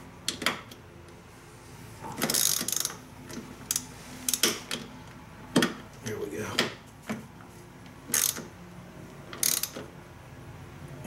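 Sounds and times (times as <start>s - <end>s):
hand ratchet clicking: 2.2s - 3.0s, 8.1s - 8.5s, 9.3s - 9.8s.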